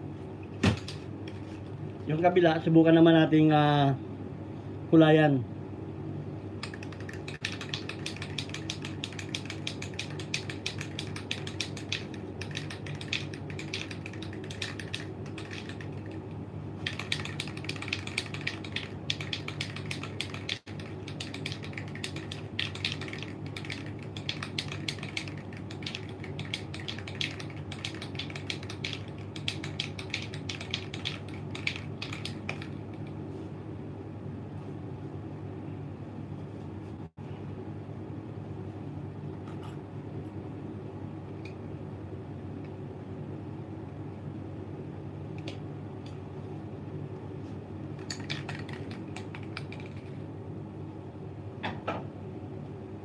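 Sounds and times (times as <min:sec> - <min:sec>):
steady low hum: 0:00.0 - 0:53.0
aerosol can mixing ball rattling: 0:06.6 - 0:16.2, 0:16.8 - 0:33.1, 0:48.0 - 0:50.2.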